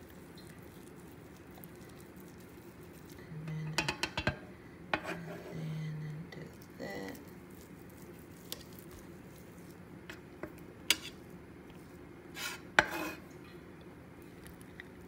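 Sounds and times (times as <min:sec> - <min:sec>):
metal spatula tapping on cutting board: 0:03.8 - 0:04.4.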